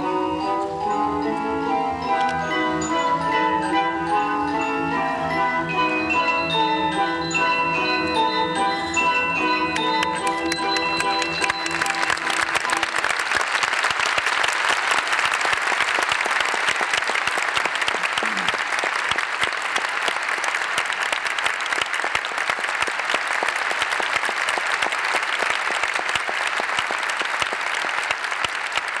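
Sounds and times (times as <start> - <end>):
audience applauding: 9.3 - 29.0.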